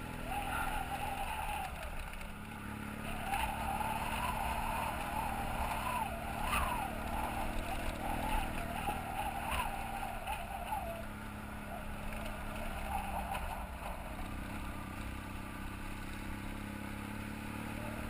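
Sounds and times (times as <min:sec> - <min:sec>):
motorcycle engine running: 0:00.0 - 0:18.0
wavering higher tone: 0:03.0 - 0:14.6.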